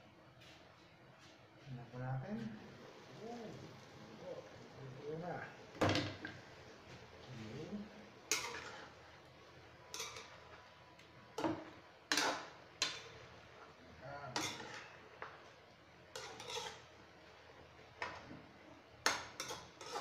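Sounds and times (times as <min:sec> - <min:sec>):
metal spoon scraping a pan: 0:08.2 - 0:09.1, 0:09.9 - 0:10.7, 0:11.3 - 0:15.5, 0:16.1 - 0:18.3, 0:19.0 - 0:20.0.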